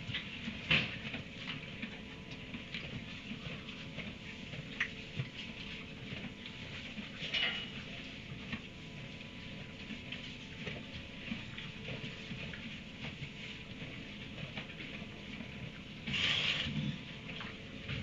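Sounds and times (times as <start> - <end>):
faint electrical hum: 0.0 - 18.0
horse crunching hay: 9.4 - 18.0.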